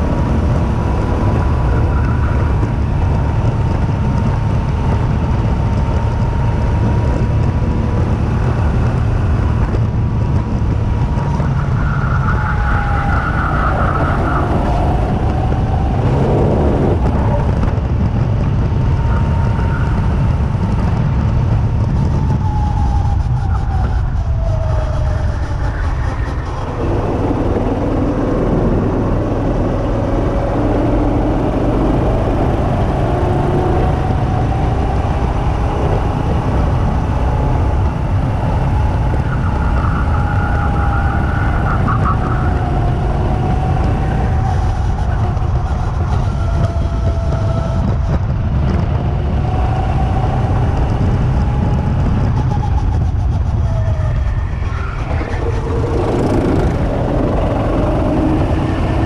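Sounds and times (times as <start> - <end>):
wind rumble on microphone: 0.0 - 59.0
go-kart motor: 25.0 - 59.0.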